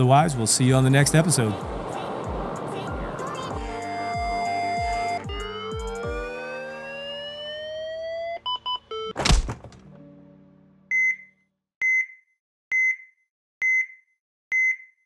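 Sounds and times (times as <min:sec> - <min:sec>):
rising siren-like tones: 0:00.3 - 0:09.2
electronic beeps: 0:03.7 - 0:09.2.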